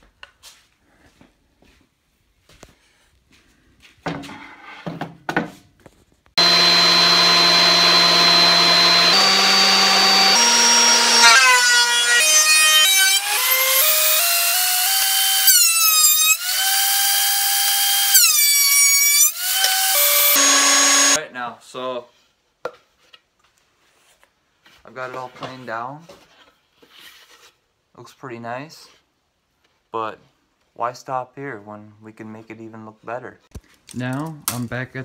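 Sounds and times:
thickness planer motor whine: 6.4 - 21.2.

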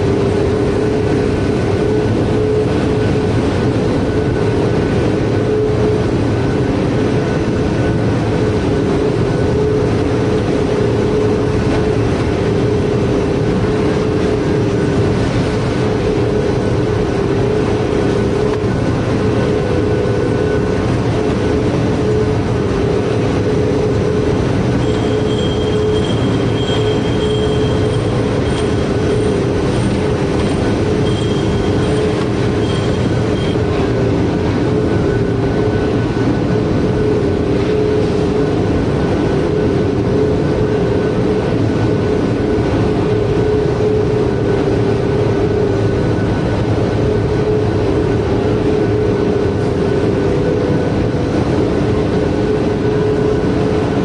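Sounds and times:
faint high whine: 0.0 - 54.0
production line mechanical din: 8.0 - 44.2.

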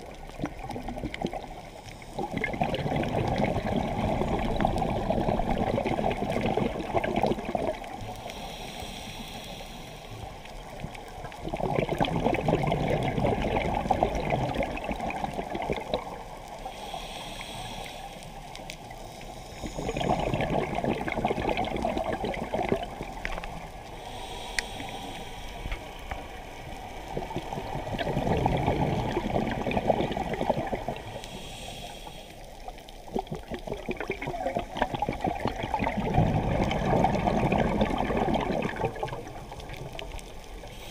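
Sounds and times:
exhaled bubbles gurgling: 0.0 - 8.4, 10.2 - 17.6, 18.4 - 40.9
regulator inhalation hiss: 8.0 - 10.4, 16.6 - 20.2, 23.9 - 26.7, 31.0 - 32.8.

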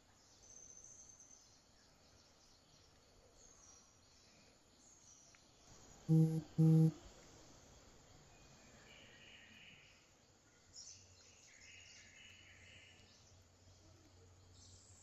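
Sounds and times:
faint outdoor ambience: 0.0 - 15.0
soft high-pitched sounds: 6.1 - 7.0.

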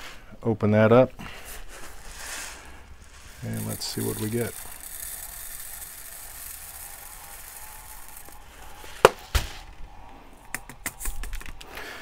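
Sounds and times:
beads pouring with a hiss: 1.6 - 9.6
beads spilling in small ticks: 1.8 - 9.2.

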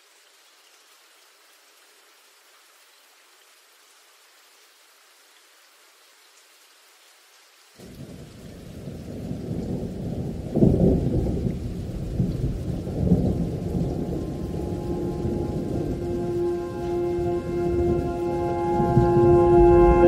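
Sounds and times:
faint hiss: 0.0 - 20.0
rain: 0.0 - 20.0
thunder rumbling: 7.9 - 20.0.

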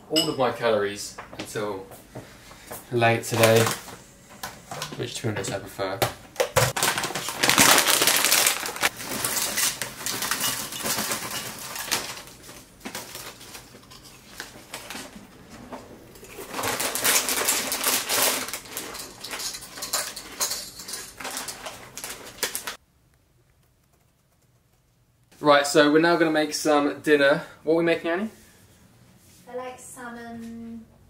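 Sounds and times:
plastic snack packets crinkling: 6.4 - 15.1, 16.2 - 22.8
chips poured into bowl: 6.8 - 12.2, 16.4 - 22.8.

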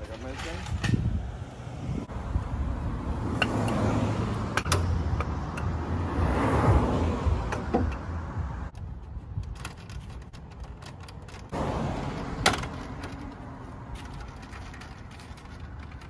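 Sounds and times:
car hood metal clicks and knocks: 7.5 - 8.1.

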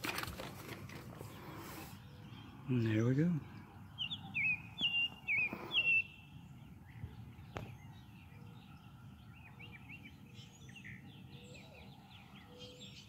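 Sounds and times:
faint bird chirps: 1.3 - 13.0
songbird whistled calls: 4.0 - 6.3.

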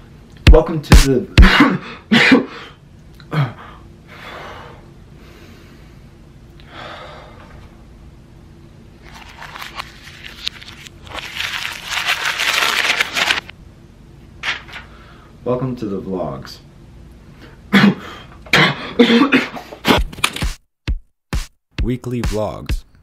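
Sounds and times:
breathy exhales: 3.3 - 7.5
wrapper crinkling and tearing: 9.0 - 13.5.

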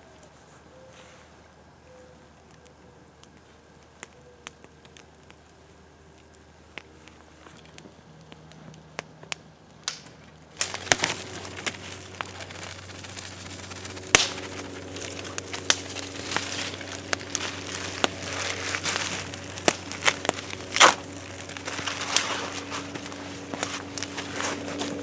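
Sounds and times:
plastic bags crinkling: 10.5 - 25.0.

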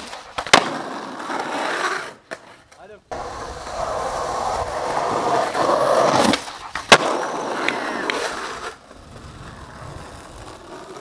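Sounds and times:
skateboard pop: 0.0 - 1.7, 4.8 - 11.0
skateboard landing crack: 0.0 - 11.0
skateboard wheels rolling on asphalt: 0.0 - 11.0.

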